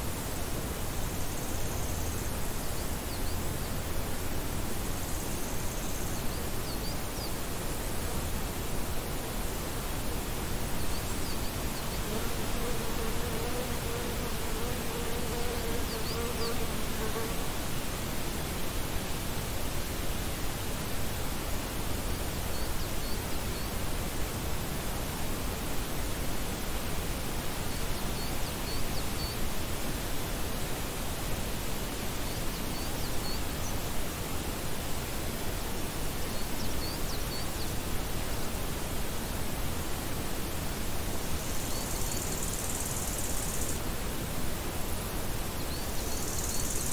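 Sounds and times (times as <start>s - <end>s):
meadow ambience hiss: 0.0s - 46.9s
wind through grass and trees: 0.0s - 46.9s
flying insect buzzing: 12.0s - 17.4s.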